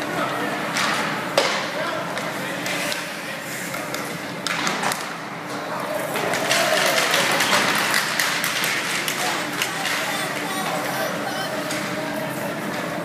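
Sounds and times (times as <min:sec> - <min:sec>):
hockey sticks and puck clacking: 0:00.7 - 0:05.2, 0:06.0 - 0:11.0
spectators' voices: 0:05.5 - 0:13.0.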